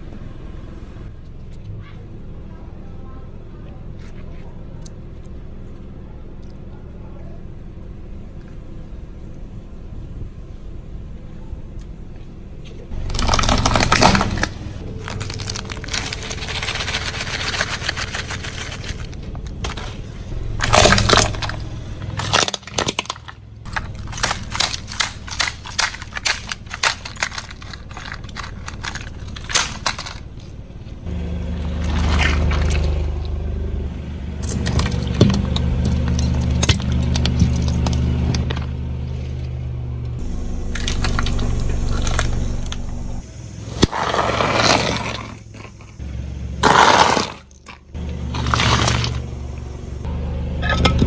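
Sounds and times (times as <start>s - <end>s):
car engine humming: 0.0s - 51.0s
tyre crushing objects: 12.9s - 33.2s, 34.4s - 38.7s, 43.8s - 46.0s, 46.6s - 49.3s
sharp cracks and snaps: 13.0s - 19.7s, 20.6s - 30.6s.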